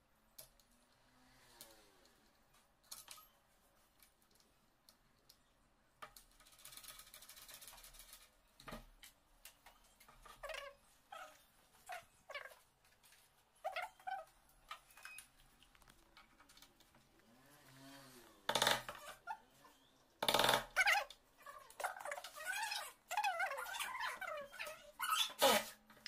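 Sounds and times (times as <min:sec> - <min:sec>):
squeaky chirps and clicks: 0:09.5 - 0:12.6, 0:13.6 - 0:15.8, 0:18.6 - 0:25.6.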